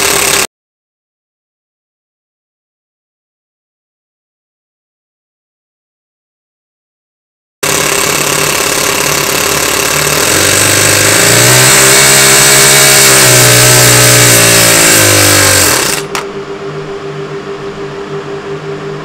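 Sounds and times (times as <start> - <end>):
small model engine running: 0.0 - 0.5, 7.6 - 16.2
quiet pulsing hum: 16.2 - 19.0.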